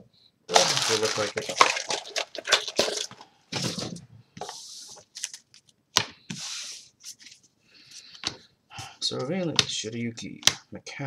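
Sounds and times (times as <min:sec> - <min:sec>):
papery card rustles: 0:00.5 - 0:05.7.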